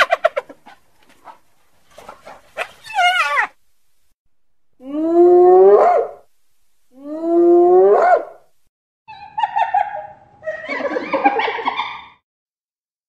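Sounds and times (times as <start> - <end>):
animal whooping calls: 2.8 - 3.6.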